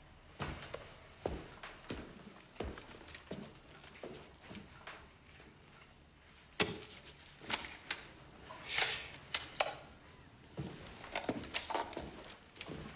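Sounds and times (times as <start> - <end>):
clicks and knocks of handled objects: 6.6 - 8.2, 10.8 - 12.9.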